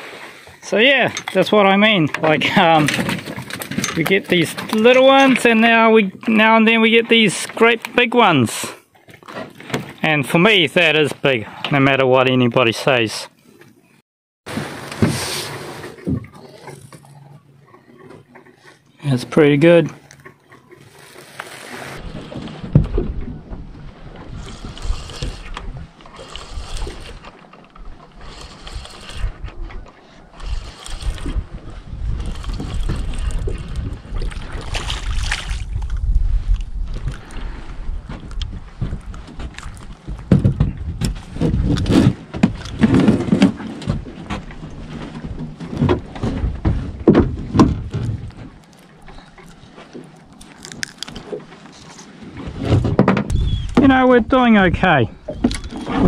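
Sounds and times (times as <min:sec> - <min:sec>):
knocks and bumps in plastic boat: 0:01.4 - 0:06.7, 0:21.7 - 0:36.4, 0:37.0 - 0:48.7, 0:51.2 - 0:56.0
water lapping at hull: 0:14.5 - 0:56.0
wind buffeting microphone: 0:27.8 - 0:42.8, 0:53.2 - 0:56.0.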